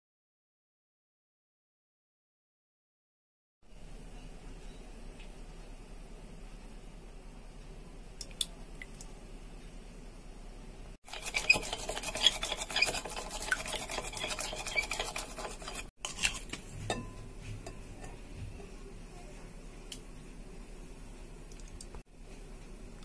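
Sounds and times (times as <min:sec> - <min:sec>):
egg sloshing: 0:11.0 - 0:16.7
whisk clinking against glass bowl: 0:11.1 - 0:18.2.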